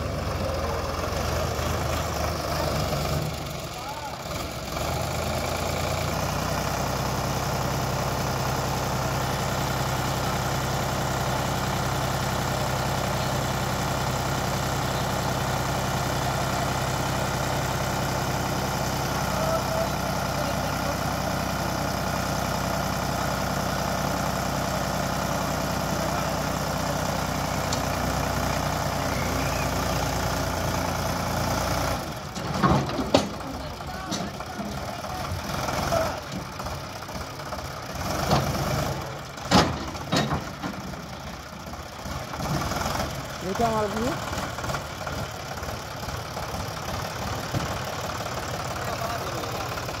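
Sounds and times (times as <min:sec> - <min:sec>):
tractor diesel engine running: 0:00.0 - 0:50.0.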